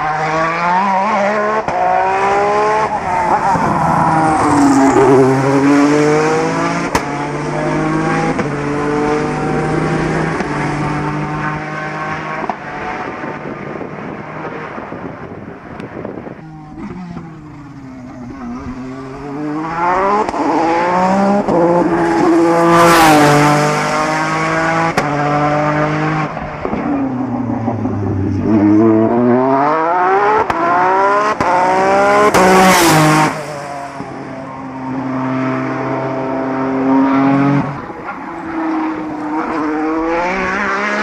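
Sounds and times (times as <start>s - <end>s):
race car accelerating with upshifts: 0.0s - 41.0s.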